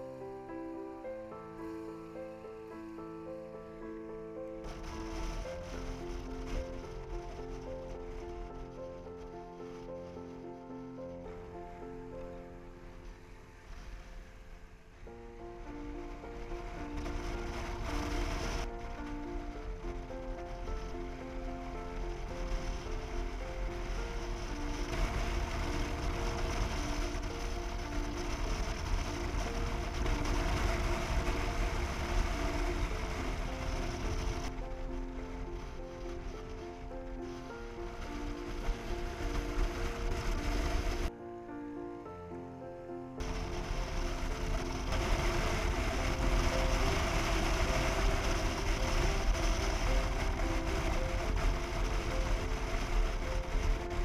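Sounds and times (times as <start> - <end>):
simple background music melody: 0.0 - 33.5, 40.1 - 43.4
wind and road noise: 0.0 - 41.1, 43.2 - 54.0.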